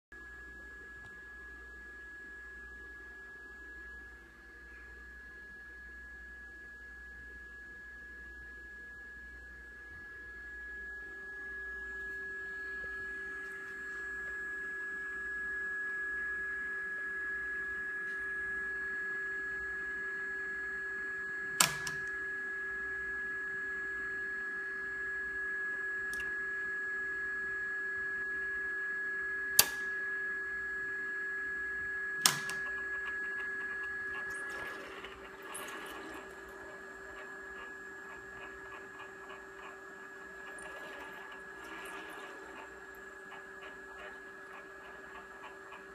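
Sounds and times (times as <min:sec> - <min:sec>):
high electronic whine: 0:10.1 - 0:45.9
switch clicking: 0:21.6 - 0:22.1, 0:29.6 - 0:29.9, 0:32.2 - 0:32.8.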